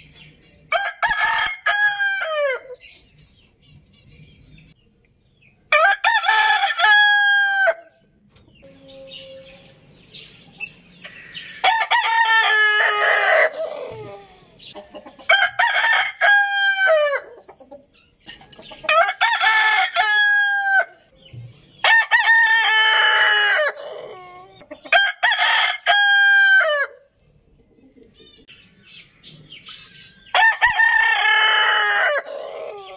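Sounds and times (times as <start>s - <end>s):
roosters crowing: 0.7s - 2.9s, 5.7s - 8.0s, 11.0s - 17.5s, 18.8s - 21.1s, 21.8s - 27.1s, 30.3s - 32.9s.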